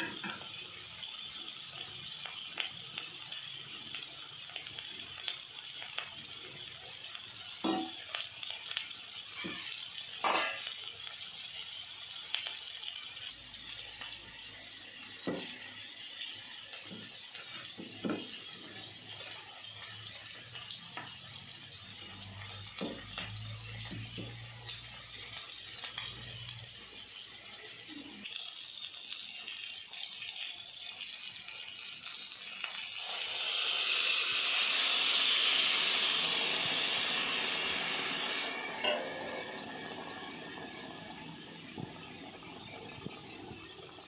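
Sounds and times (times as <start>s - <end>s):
water pouring with rushing splash: 0.0s - 44.0s
faint hiss: 31.1s - 44.0s.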